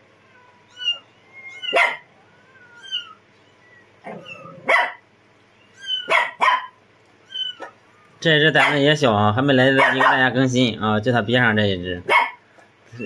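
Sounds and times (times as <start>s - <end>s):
puppy whining: 0.2s - 6.6s, 7.2s - 8.8s
puppy barking: 1.6s - 2.1s, 4.0s - 5.1s, 5.8s - 7.8s, 8.5s - 8.9s, 9.7s - 10.4s, 12.0s - 12.5s.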